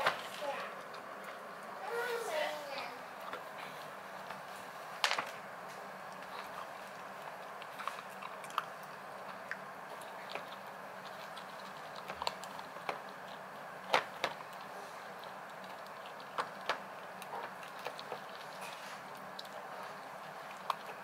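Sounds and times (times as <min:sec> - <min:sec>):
dog crunching kibble in metal bowl: 0:06.1 - 0:21.0.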